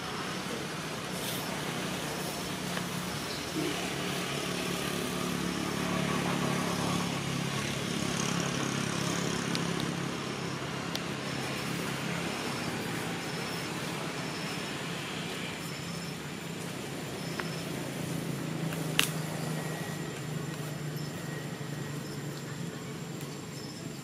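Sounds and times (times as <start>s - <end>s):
traffic background noise: 0.0s - 24.0s
vehicle engine humming: 0.0s - 24.0s
faint high chirp: 11.4s - 18.2s.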